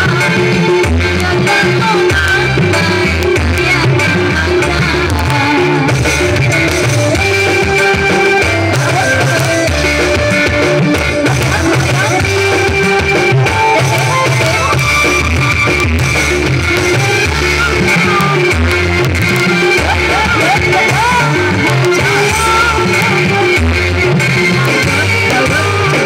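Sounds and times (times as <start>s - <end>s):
woman singing into microphone: 0.0s - 15.0s, 16.8s - 26.0s
dance music over pa: 0.0s - 26.0s
drum beat: 0.0s - 26.0s.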